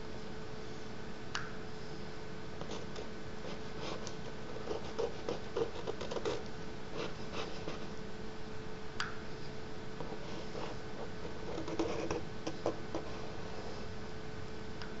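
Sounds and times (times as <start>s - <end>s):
faint steady hum: 0.0s - 15.0s
stick scratching on paper: 2.6s - 8.0s, 10.0s - 13.8s.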